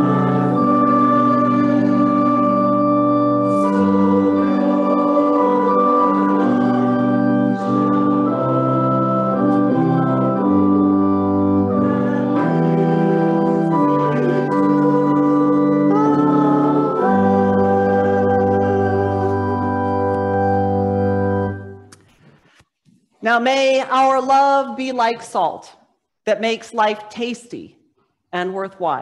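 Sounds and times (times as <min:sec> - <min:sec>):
organ playing a slow hymn: 0:00.0 - 0:21.9.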